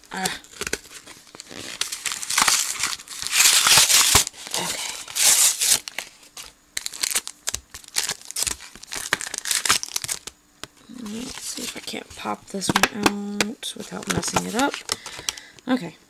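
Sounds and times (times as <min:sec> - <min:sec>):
packaging crinkling: 0:00.1 - 0:13.1, 0:13.8 - 0:15.5
cardboard ripping: 0:00.2 - 0:10.3.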